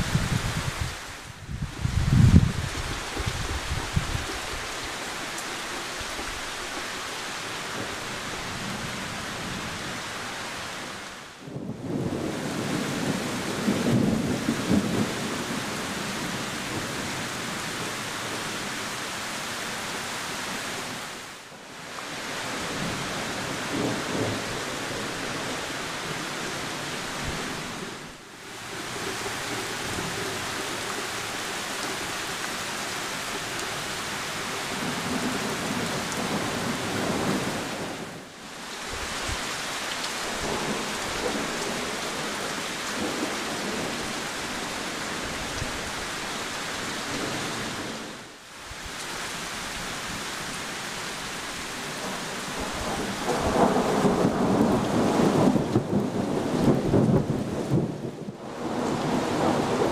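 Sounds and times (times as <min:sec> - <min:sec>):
heavy rain on trees: 0:00.0 - 0:59.9
thunder rumbling: 0:11.5 - 0:17.2, 0:52.0 - 0:59.9.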